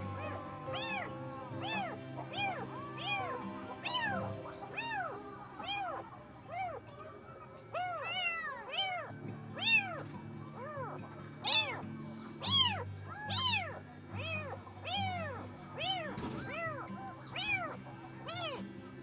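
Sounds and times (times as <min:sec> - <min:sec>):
kitten meowing: 0:00.0 - 0:06.8, 0:07.7 - 0:11.8, 0:12.4 - 0:18.6
soft background music: 0:00.0 - 0:19.0.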